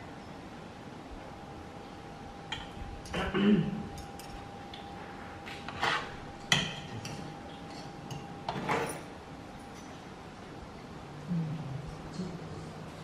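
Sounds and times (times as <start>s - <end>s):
cutlery clinking on ceramic plate: 5.7s - 10.0s.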